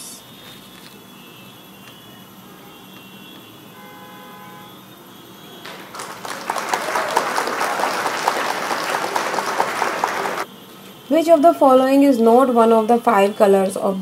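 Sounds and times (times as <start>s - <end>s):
faint steady tones: 0.0s - 5.9s
recorded applause: 5.6s - 10.5s.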